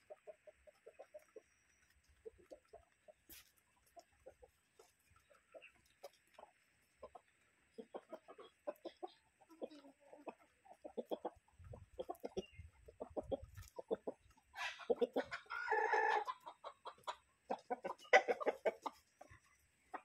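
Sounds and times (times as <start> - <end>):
chickens clucking: 0.0 - 20.0
chicken drawn-out call: 7.0 - 19.3.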